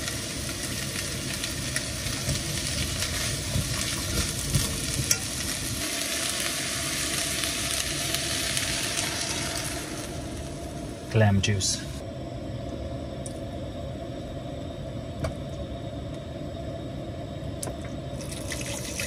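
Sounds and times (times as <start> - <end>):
vegetables sizzling in a wok: 0.0 - 11.7.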